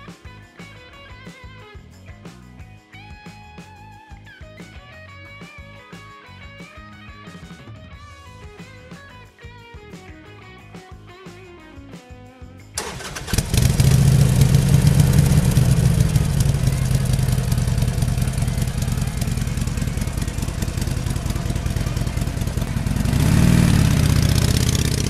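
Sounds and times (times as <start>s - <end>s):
motorcycle engine running: 12.8s - 25.0s.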